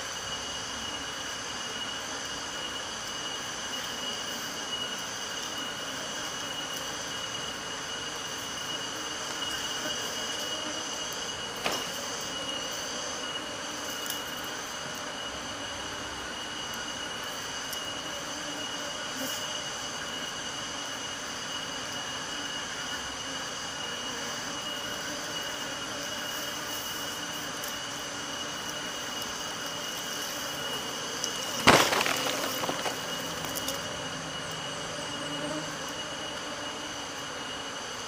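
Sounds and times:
insect drone: 0.0s - 38.0s
crackling: 31.3s - 33.8s.

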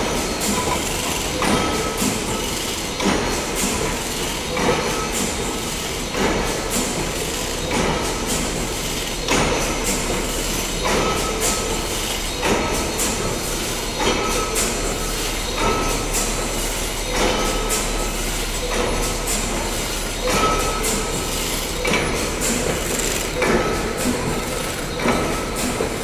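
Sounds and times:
heavy loom knock: 0.0s - 5.5s, 18.7s - 26.0s
loom mechanical clatter: 0.0s - 26.0s.

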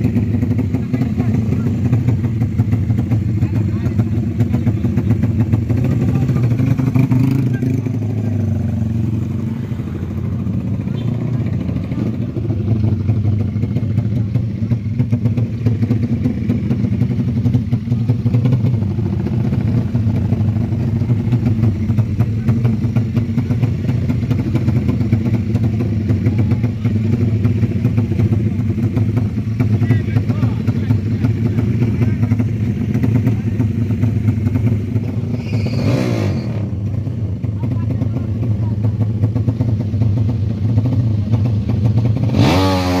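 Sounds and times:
motorcycle engines running: 0.0s - 43.0s.

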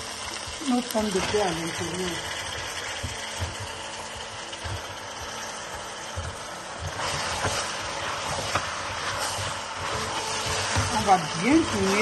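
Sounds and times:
wooden spoon stirring stew in pot: 0.4s - 12.0s.

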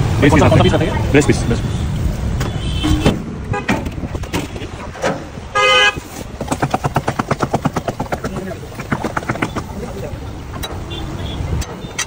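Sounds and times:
street traffic: 0.0s - 12.0s
vehicle horn honk: 2.5s - 3.7s, 5.6s - 6.0s.

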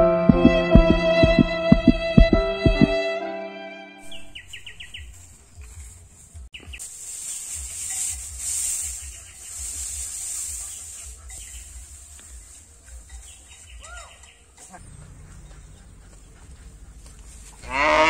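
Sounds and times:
dry straw rustling: 4.1s - 18.0s
bird calling: 13.1s - 17.7s.

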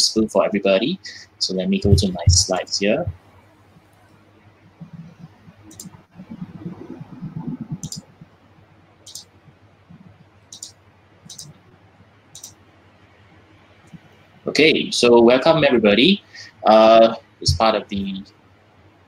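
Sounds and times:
muffled microphone noise: 0.0s - 10.5s, 13.3s - 18.2s
computer mouse clicking: 4.8s - 6.0s, 7.4s - 8.2s, 9.0s - 9.3s, 10.5s - 11.6s, 12.3s - 12.6s.

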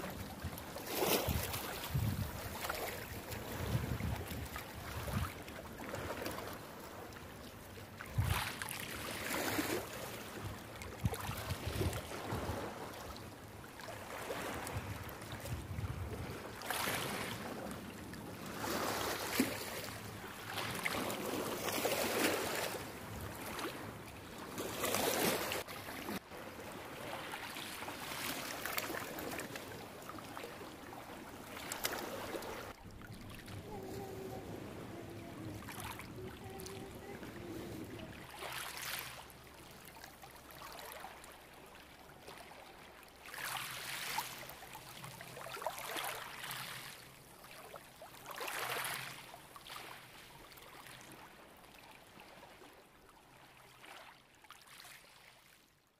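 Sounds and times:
small waves washing on shore: 0.0s - 55.6s.

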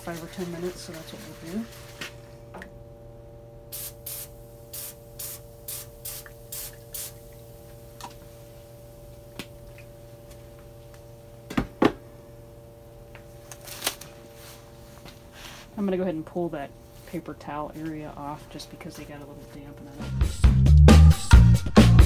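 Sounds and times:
aerosol can spraying: 3.7s - 7.2s.

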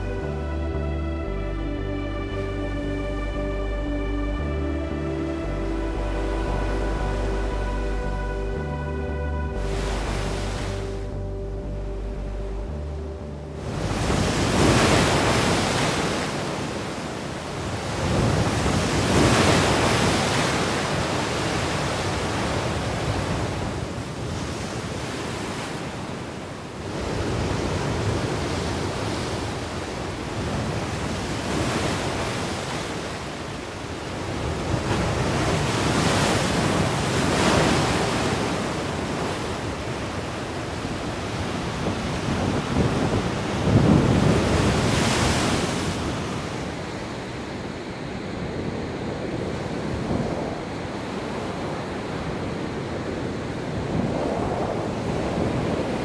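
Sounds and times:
waves crashing on rocks: 14.0s - 47.8s.

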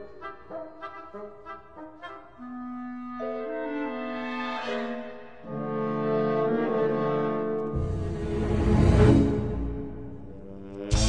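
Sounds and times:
film score music: 0.0s - 11.0s
deep rumble: 7.7s - 11.0s.

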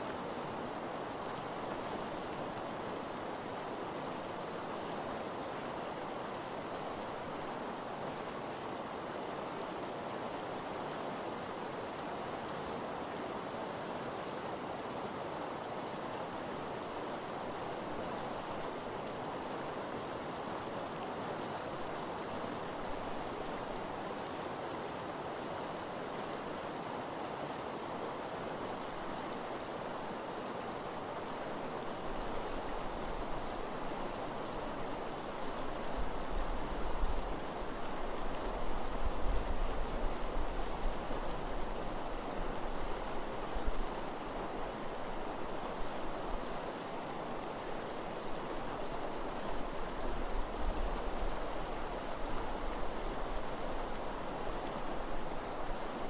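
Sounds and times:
river rushing over gravel: 0.0s - 56.0s.

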